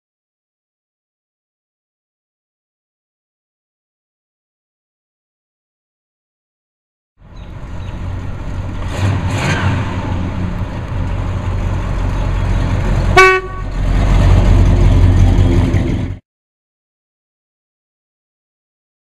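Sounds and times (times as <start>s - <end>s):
car engine driving past: 7.2s - 16.2s
car horn toot: 13.1s - 13.8s.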